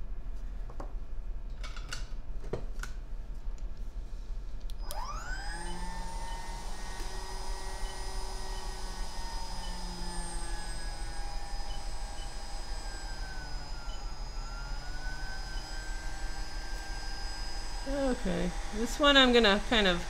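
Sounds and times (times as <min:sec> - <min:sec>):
hot air blower whine: 0:04.8 - 0:20.0.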